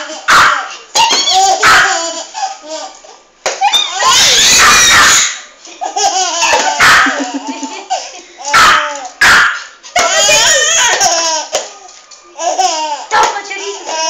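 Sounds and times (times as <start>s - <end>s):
baby laughing: 5.8s - 9.0s, 12.4s - 13.1s.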